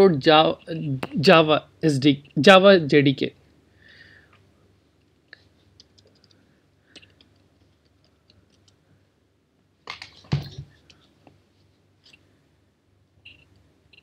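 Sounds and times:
keyboard typing: 0:05.8 - 0:06.4.

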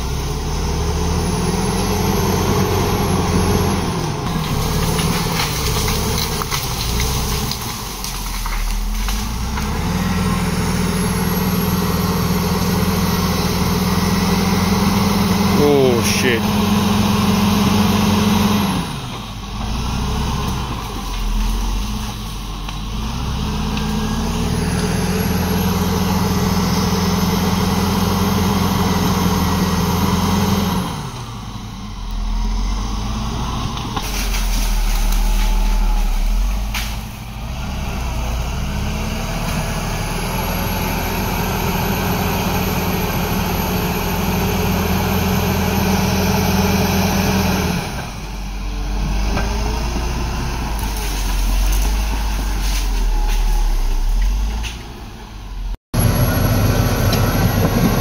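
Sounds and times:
bulldozer diesel engine under load: 0:00.0 - 0:58.0.

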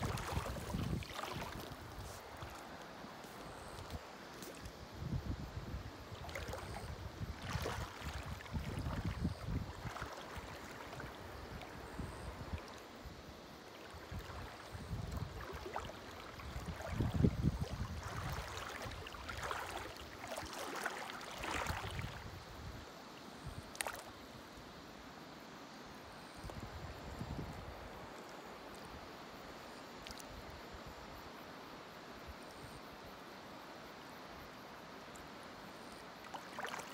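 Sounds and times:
water splashes: 0:00.0 - 0:04.8, 0:06.0 - 0:12.9, 0:13.6 - 0:22.4, 0:23.7 - 0:24.1, 0:36.2 - 0:36.9
stream running over stones: 0:00.0 - 0:22.6, 0:36.0 - 0:36.9.

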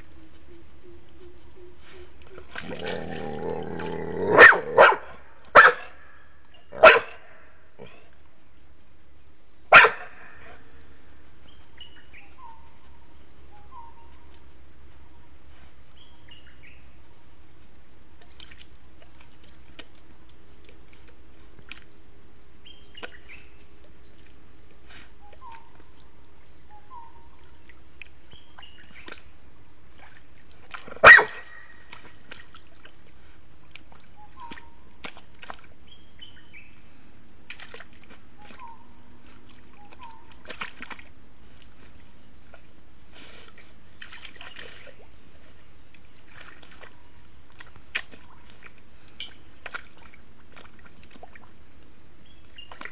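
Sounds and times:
young dog barking: 0:04.2 - 0:06.0, 0:06.7 - 0:07.4, 0:09.7 - 0:10.3, 0:31.0 - 0:31.6.

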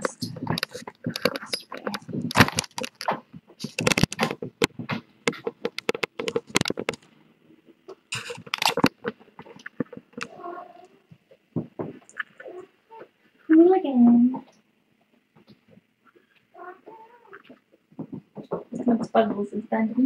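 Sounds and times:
quick clicks taps and scratching: 0:00.0 - 0:07.1, 0:08.1 - 0:10.4, 0:17.3 - 0:19.1.

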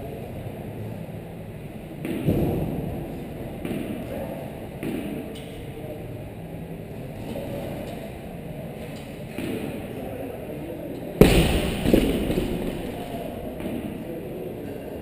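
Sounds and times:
barbell slamming on rubber mats: 0:11.2 - 0:13.6.

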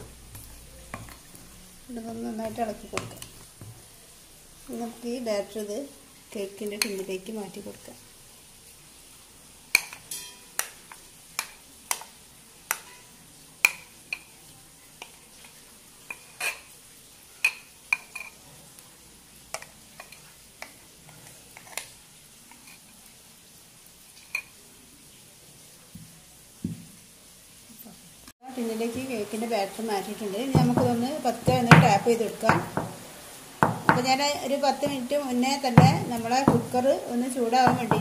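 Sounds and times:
spoon clinking against bowl: 0:09.8 - 0:10.5.

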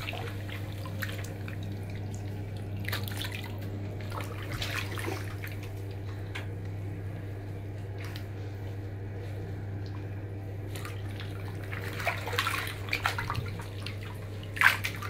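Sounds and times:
water splashing in a tub: 0:00.0 - 0:06.1, 0:09.7 - 0:15.0
steady low hum: 0:00.0 - 0:15.0.

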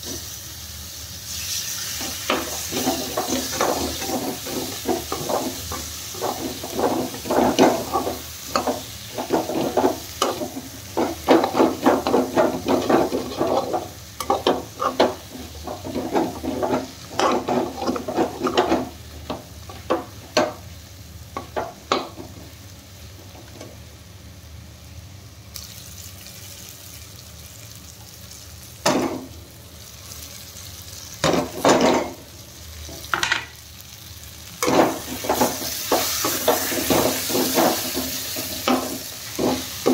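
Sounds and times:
food sizzling in a pan: 0:00.0 - 0:39.9
spatula scraping a metal pan: 0:02.3 - 0:18.9.

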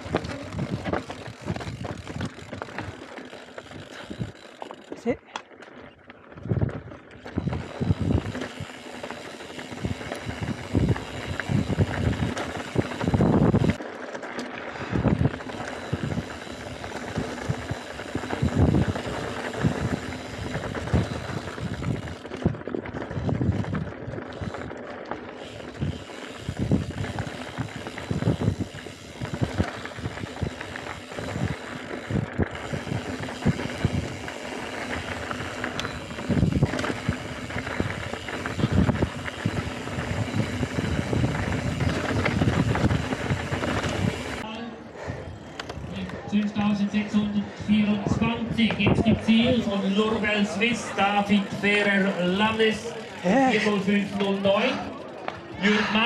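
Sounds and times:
bike rattling over bumps: 0:00.0 - 0:56.0
bike tyres rolling over stones: 0:00.0 - 0:56.0
wind on microphone: 0:06.4 - 0:08.8, 0:09.7 - 0:13.8, 0:14.8 - 0:24.7, 0:25.6 - 0:44.4, 0:47.6 - 0:49.6.

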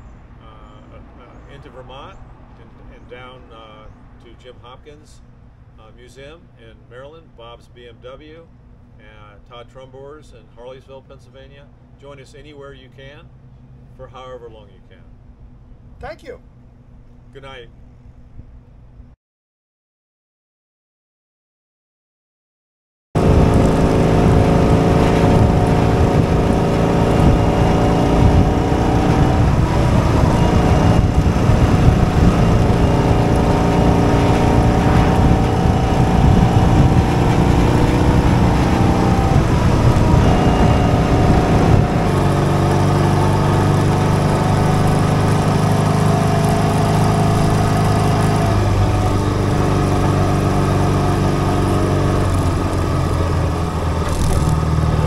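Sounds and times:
motorcycle engine running: 0:23.2 - 0:55.0
wind noise on microphone: 0:23.2 - 0:55.0.

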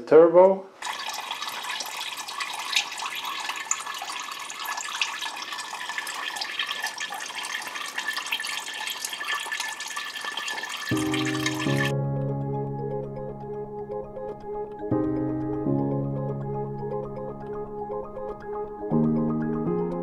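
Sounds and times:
fluid trickling into bucket: 0:00.8 - 0:11.9
small drips: 0:00.8 - 0:11.9.

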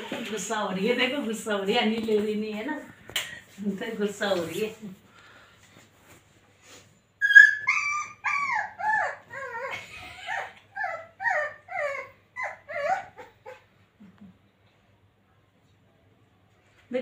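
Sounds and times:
puppy whining and yipping: 0:07.2 - 0:13.7.

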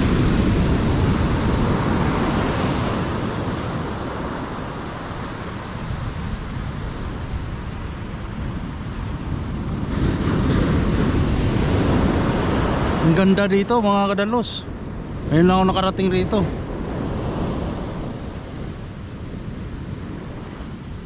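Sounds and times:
ocean surf breaking on beach: 0:00.0 - 0:21.0.

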